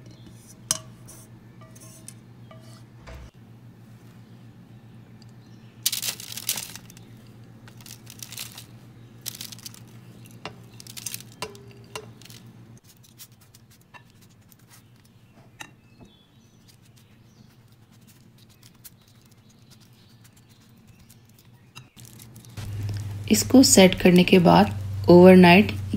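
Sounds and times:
low steady hum: 0:00.0 - 0:12.8, 0:21.6 - 0:25.9
crunchy rustles of oats: 0:05.8 - 0:15.2, 0:16.6 - 0:23.3
paper crinkling: 0:05.8 - 0:15.2, 0:16.6 - 0:23.3.

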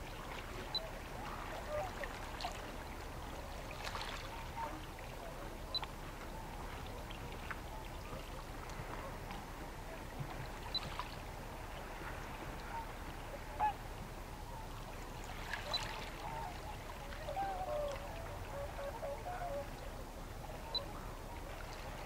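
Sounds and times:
waterfowl honking: 0:00.6 - 0:02.6, 0:12.7 - 0:13.8, 0:15.4 - 0:19.8, 0:20.6 - 0:21.1.

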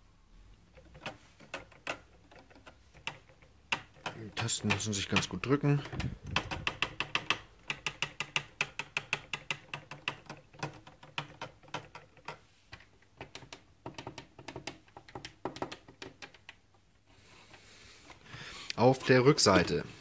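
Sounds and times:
plastic keyboard keys clicking: 0:00.8 - 0:16.6.

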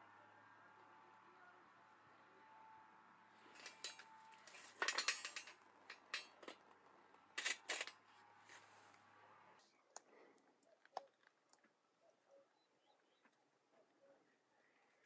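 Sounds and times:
hard objects clinking together: 0:03.6 - 0:06.6, 0:07.4 - 0:08.0.

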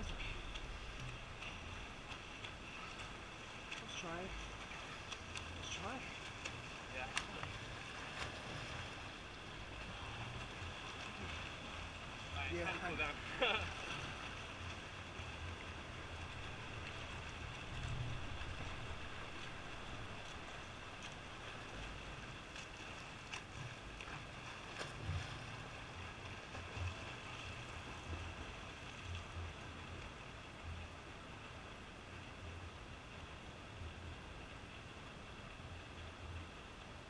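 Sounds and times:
swimmers splashing: 0:00.0 - 0:29.0
pool water lapping against wall: 0:00.0 - 0:32.6
wind rumble on microphone: 0:14.1 - 0:22.4.

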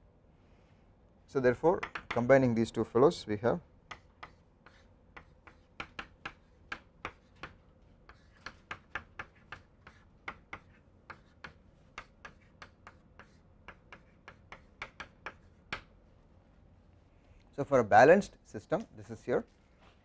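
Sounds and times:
chalk tapping on blackboard: 0:01.8 - 0:02.2, 0:03.9 - 0:15.9.

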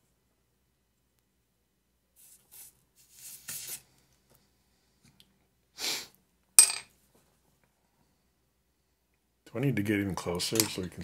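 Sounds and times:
hands rustling and scraping: 0:02.2 - 0:04.4.

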